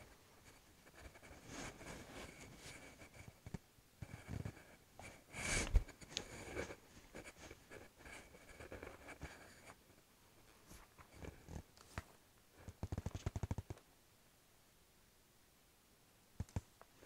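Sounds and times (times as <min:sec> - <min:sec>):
cloth wiping a board: 0:00.0 - 0:03.2.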